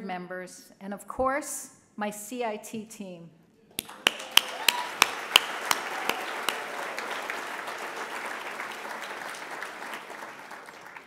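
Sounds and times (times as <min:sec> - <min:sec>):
audience applauding: 0:03.8 - 0:11.0
loud close hand claps: 0:03.8 - 0:11.0.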